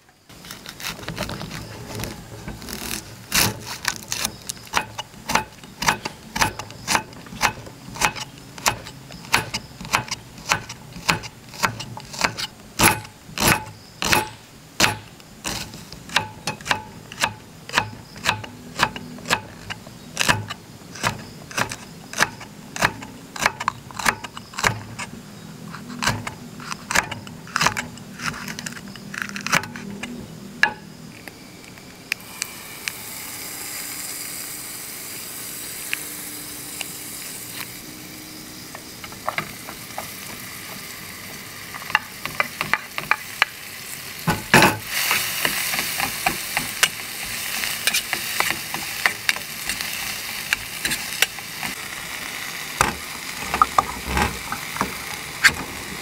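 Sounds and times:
knife chopping on wooden board: 2.8 - 24.9
faint sizzle in pan: 30.2 - 56.0.

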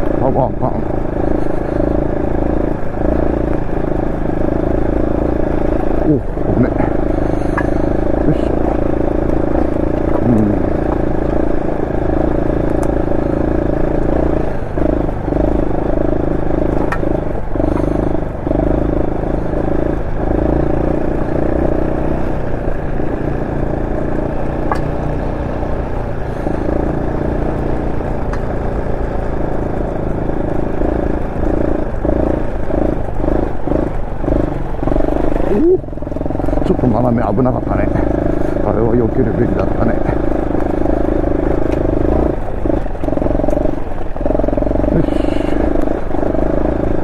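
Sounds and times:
motorcycle engine: 0.0 - 47.0
sharp clicks and clatter: 5.3 - 18.3, 24.0 - 47.0.

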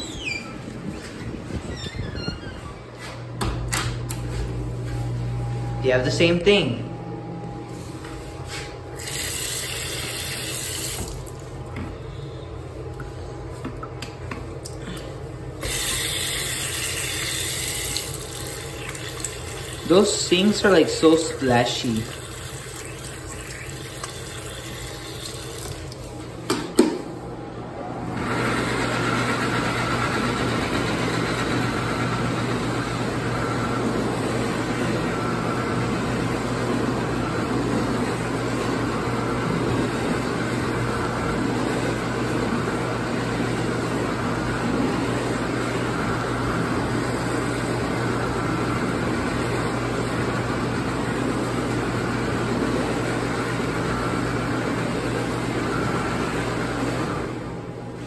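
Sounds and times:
electric hand dryer running: 8.5 - 11.4, 15.6 - 26.0, 28.2 - 57.3
faucet water running into sink: 9.0 - 11.4, 15.6 - 20.0, 21.2 - 26.0.

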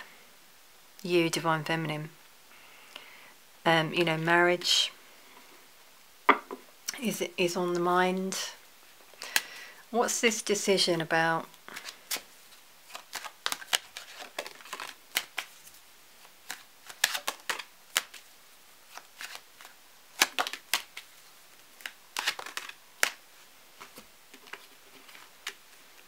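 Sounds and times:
cards being shuffled: 11.7 - 18.3, 18.9 - 21.2, 21.8 - 23.2, 23.8 - 26.0.

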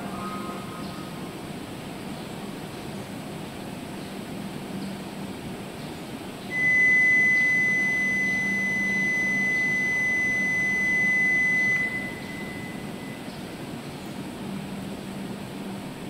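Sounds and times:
low steady hum: 0.0 - 16.0
high electronic beep tone: 6.5 - 13.3.

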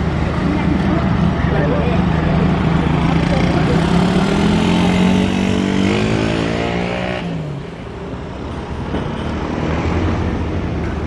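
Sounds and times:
motorcycle engine accelerating: 2.4 - 7.5.

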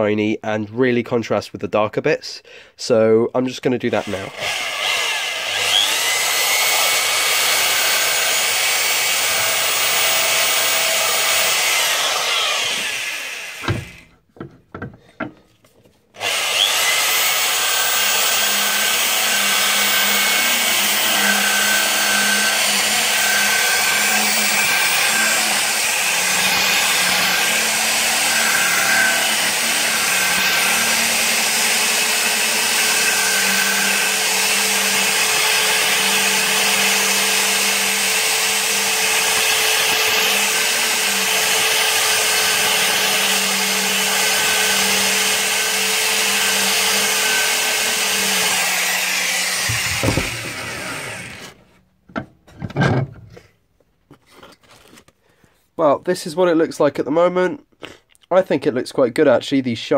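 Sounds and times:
electric drill buffing metal: 3.9 - 14.1, 16.2 - 51.6.

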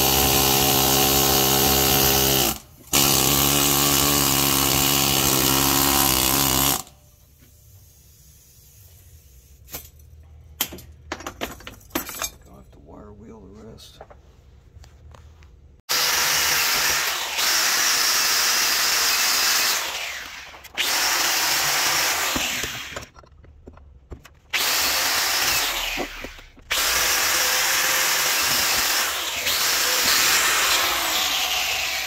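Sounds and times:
angle grinder on steel: 0.0 - 6.9, 15.9 - 23.1, 24.6 - 32.0.

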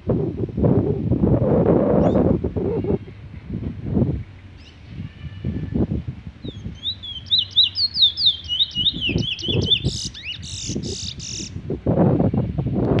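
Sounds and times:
low rumbling noise: 0.0 - 13.0
finch singing whistled notes: 6.4 - 11.6.

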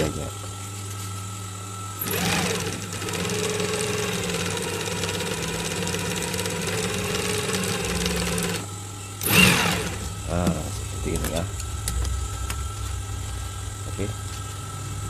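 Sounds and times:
motor humming: 0.0 - 15.0
sewing machine stitching: 2.0 - 8.6, 9.2 - 10.0.

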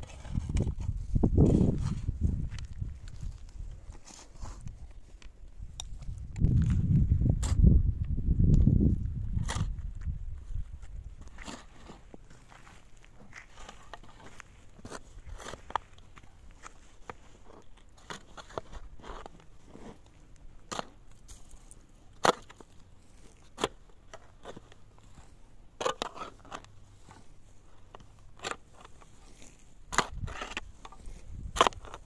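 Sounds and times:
metal shovel digging stony soil: 0.0 - 5.0, 5.6 - 7.8, 9.1 - 32.0.

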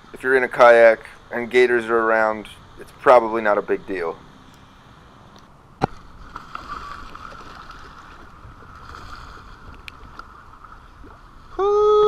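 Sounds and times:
water rushing along kayak hull: 5.8 - 12.0.

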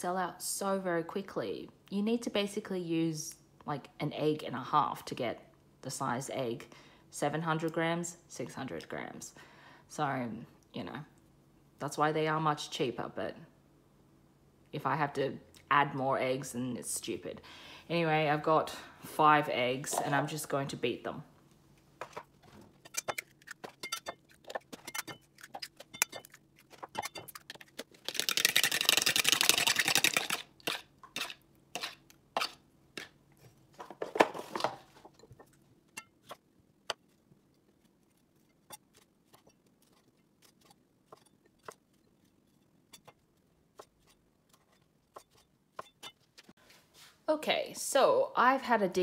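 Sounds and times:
eggs beaten briskly in bowl: 22.9 - 33.1.

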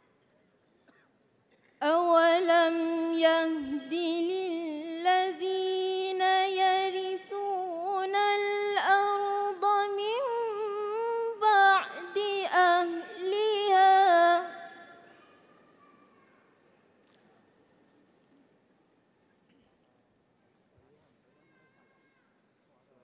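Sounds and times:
woman reciting melodically: 1.8 - 15.2.

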